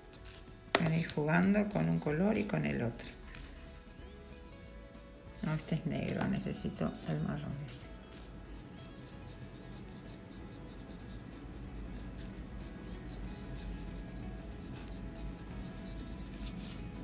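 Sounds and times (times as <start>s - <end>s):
pencil scratching on paper: 7.7s - 17.0s.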